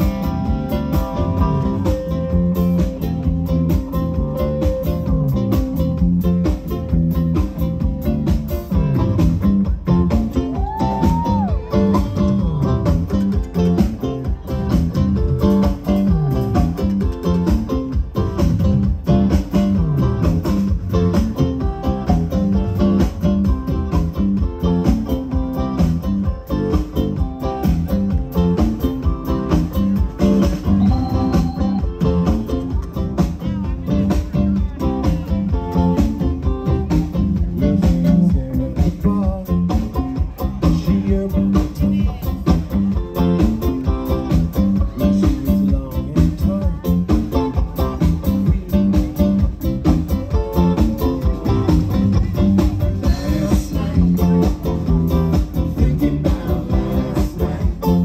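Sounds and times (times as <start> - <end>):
bass line: 0.0 - 58.0
drums keeping steady beat: 0.0 - 58.0
guitar: 0.0 - 58.0
live band playing: 0.0 - 58.0
sliding lead guitar note: 30.4 - 33.1.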